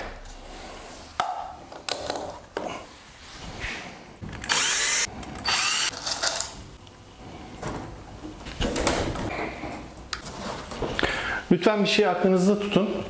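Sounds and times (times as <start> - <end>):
cordless drill boring into wood: 4.4 - 6.0.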